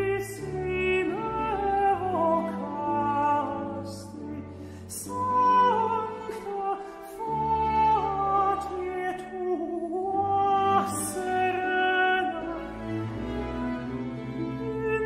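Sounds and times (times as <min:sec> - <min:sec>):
orchestral accompaniment: 0:10.0 - 0:15.0.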